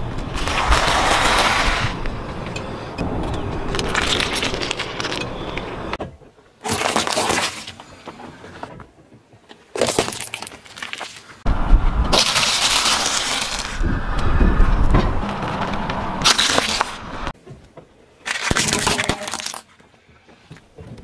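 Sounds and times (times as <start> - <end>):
deep rumble: 11.5 - 17.3
tyre crushing food on asphalt: 12.1 - 13.8.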